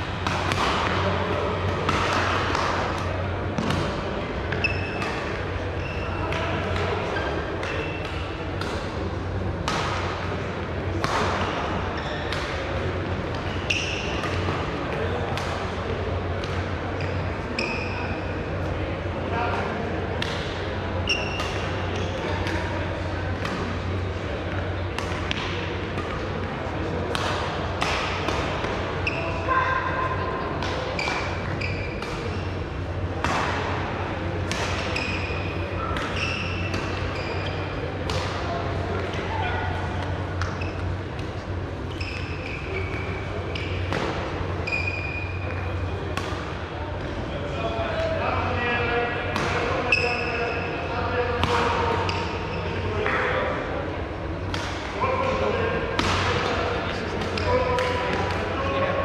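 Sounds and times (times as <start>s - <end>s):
shoes squeaking on court floor: 4.5s - 6.3s, 7.2s - 8.2s, 12.0s - 12.5s, 13.4s - 14.5s, 17.0s - 18.1s, 21.0s - 22.5s, 29.0s - 29.4s, 30.9s - 32.6s, 34.8s - 37.8s, 40.4s - 45.8s, 49.9s - 50.8s
rackets striking shuttlecock: 54.5s - 55.0s.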